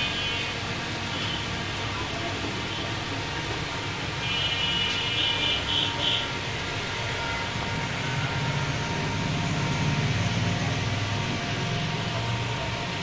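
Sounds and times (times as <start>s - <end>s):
low engine rumble: 4.9s - 13.0s.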